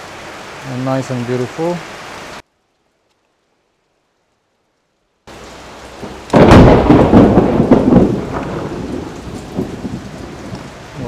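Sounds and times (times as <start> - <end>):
heavy rain: 0.0 - 11.0
thunder clap rumbling: 5.3 - 11.0.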